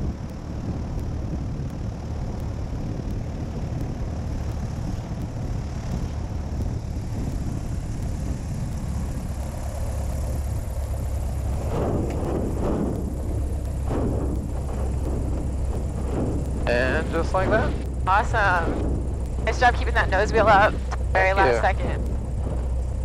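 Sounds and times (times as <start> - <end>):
small plane engine droning: 0.0 - 23.0
airflow rushing past camera: 4.5 - 23.0.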